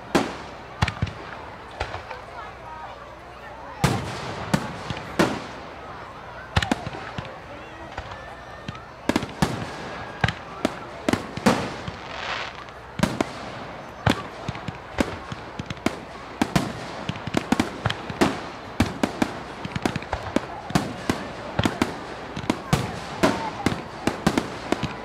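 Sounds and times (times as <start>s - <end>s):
fireworks bangs: 0.0s - 2.7s, 3.6s - 25.0s
firework hiss: 11.5s - 13.7s.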